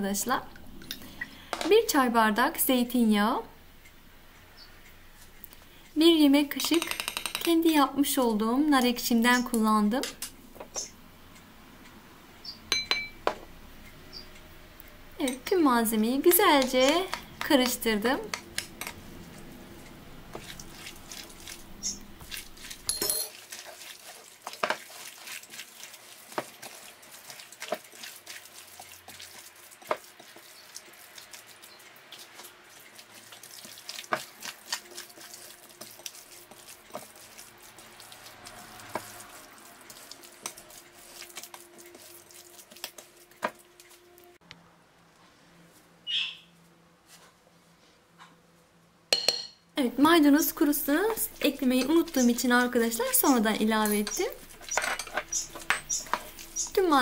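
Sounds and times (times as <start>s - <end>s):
wet mixing in a bowl: 15.2s - 44.4s, 49.8s - 57.0s.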